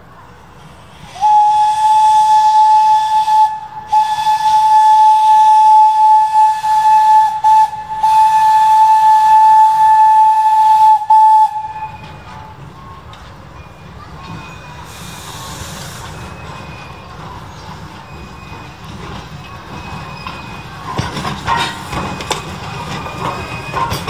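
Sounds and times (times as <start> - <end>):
locomotive whistle blasts: 1.1 - 12.5.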